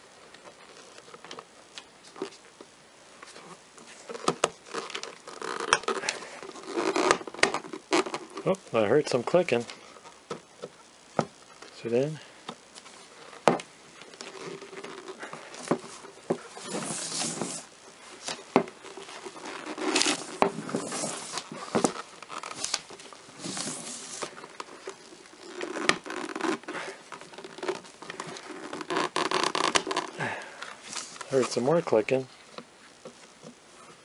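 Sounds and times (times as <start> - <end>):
glove rubbing on glass: 14.1 - 17.7.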